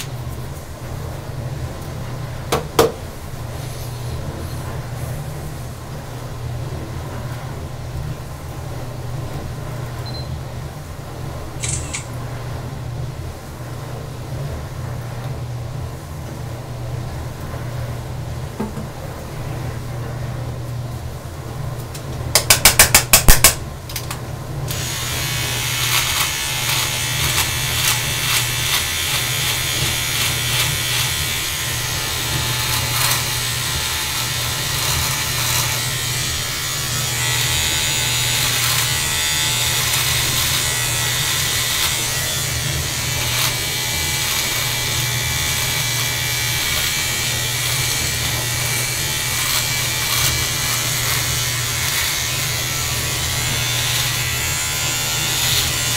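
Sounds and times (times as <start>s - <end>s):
beard trimmer buzzing: 11.6s - 12.0s, 24.7s - 55.9s.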